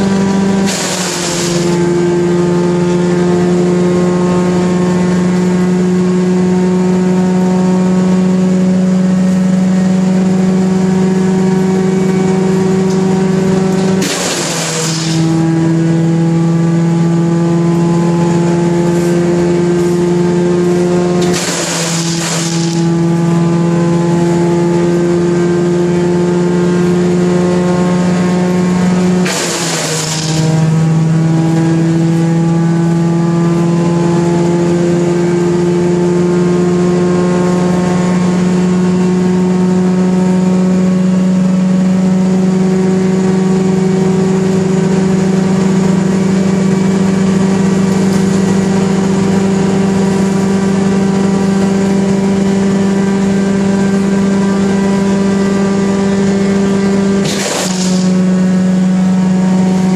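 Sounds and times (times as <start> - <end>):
wood chipper engine running: 0.0 - 59.9
brush chipping noise: 21.2 - 22.9.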